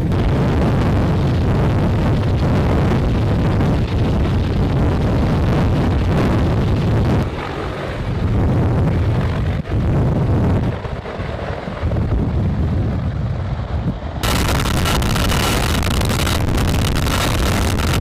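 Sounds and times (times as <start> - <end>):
helicopter rotor rumble: 0.0 - 18.0
wind buffeting microphone: 0.0 - 18.0
faint steady whine: 14.2 - 18.0.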